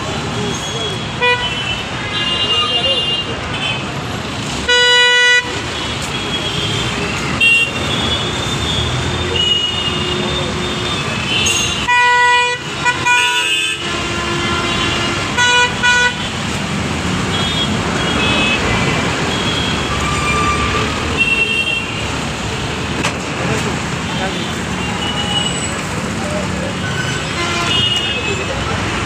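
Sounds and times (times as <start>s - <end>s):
traffic engine and road noise: 0.0s - 29.0s
vehicle horns honking: 0.5s - 4.0s, 4.6s - 16.5s, 17.3s - 22.1s, 26.8s - 28.7s.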